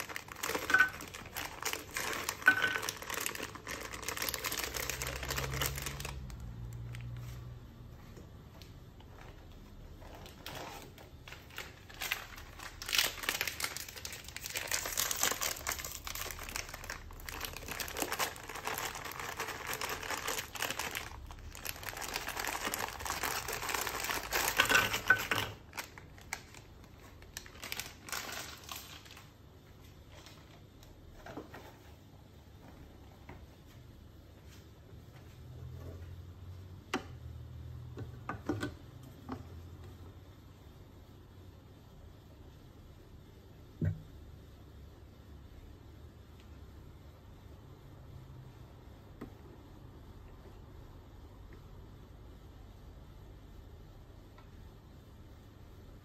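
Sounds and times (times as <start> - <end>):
crackers crinkling and crackling: 0.0 - 7.5, 8.6 - 31.4.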